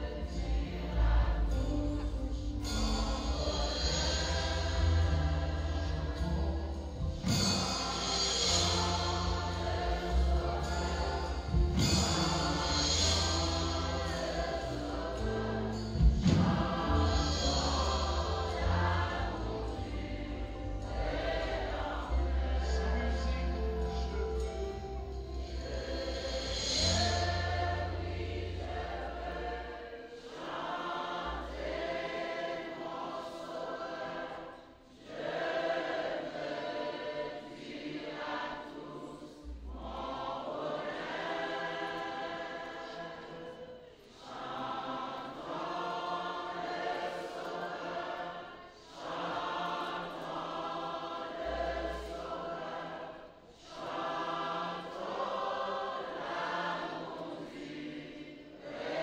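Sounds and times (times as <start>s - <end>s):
church choir singing: 0.0s - 59.0s
deep low thumps: 1.0s - 23.1s.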